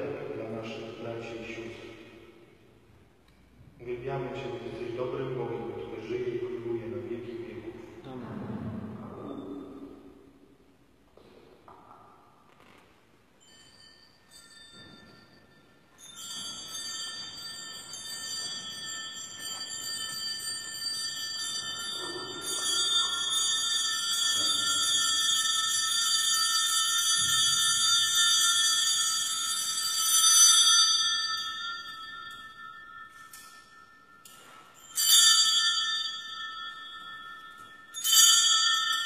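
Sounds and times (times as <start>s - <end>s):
small hand bells ringing: 13.4s - 39.0s.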